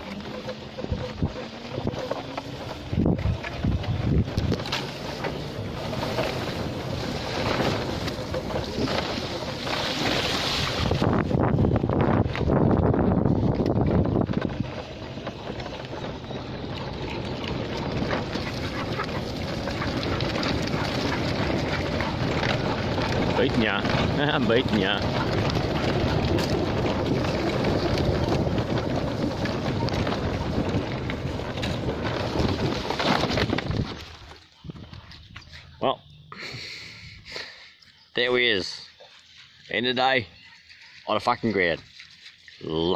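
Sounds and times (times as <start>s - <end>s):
wind on microphone: 0.0s - 35.4s
tyres on wet dirt trail: 0.0s - 42.9s
bike tyres splashing through water: 2.5s - 13.8s.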